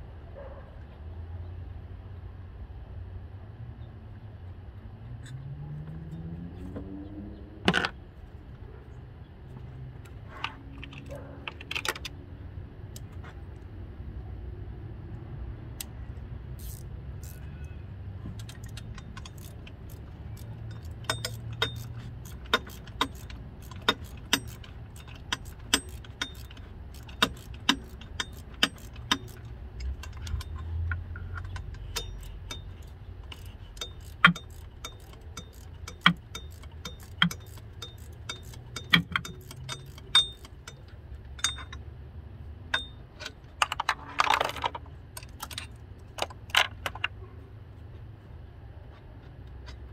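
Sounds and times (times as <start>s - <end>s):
hand tools clinking on metal: 18.5s - 41.8s.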